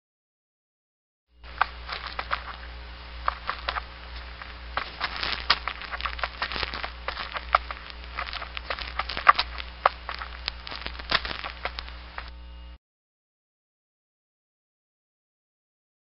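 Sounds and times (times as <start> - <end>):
steady low hum: 1.3 - 12.8
dry clicking and crackling: 1.4 - 12.3.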